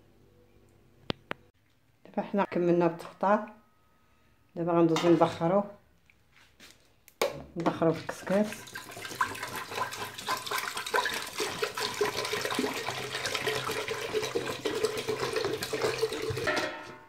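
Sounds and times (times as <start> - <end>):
water pouring into metal pot: 8.1 - 17.0.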